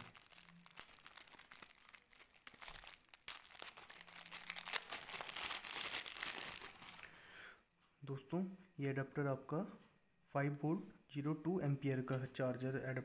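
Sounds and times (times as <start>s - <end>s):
plastic bag crinkling: 0.0s - 7.1s.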